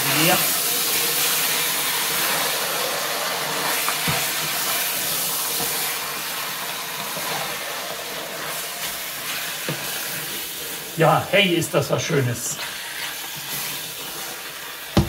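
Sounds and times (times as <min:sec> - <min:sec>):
stew sizzling in a pot: 0:00.0 - 0:15.0.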